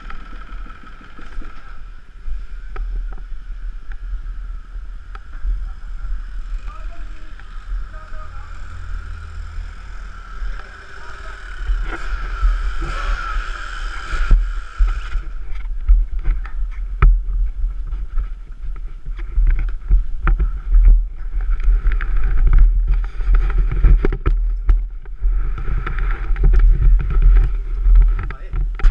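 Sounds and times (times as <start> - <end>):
dirt bike engines idling: 0.0 - 28.8
wind buffeting microphone: 11.3 - 28.9.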